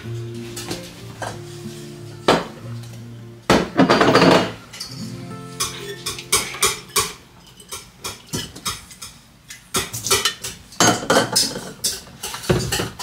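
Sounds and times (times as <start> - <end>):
glass dishes clinking and knocking: 3.5 - 5.0, 5.6 - 9.2, 9.8 - 13.0.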